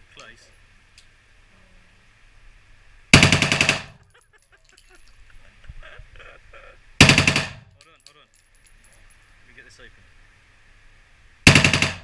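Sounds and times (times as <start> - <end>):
automatic gunfire bursts indoors: 3.1 - 4.0, 7.0 - 7.7, 11.5 - 12.0.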